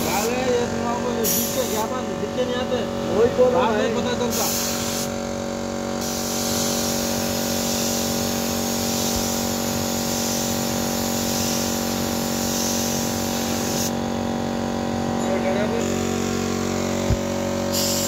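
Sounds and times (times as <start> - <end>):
spray gun hissing: 0.0 - 2.0, 4.3 - 5.2, 6.0 - 14.0, 17.0 - 18.0
air compressor hum: 0.0 - 18.0.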